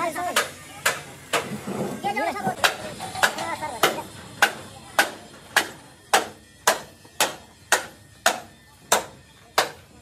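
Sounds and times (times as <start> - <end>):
hammer striking metal: 2.6 - 9.8.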